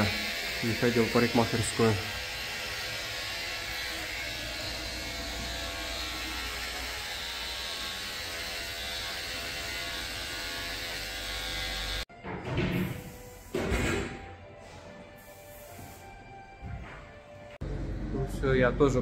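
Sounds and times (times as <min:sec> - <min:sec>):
electric hair clippers running: 0:00.0 - 0:12.1.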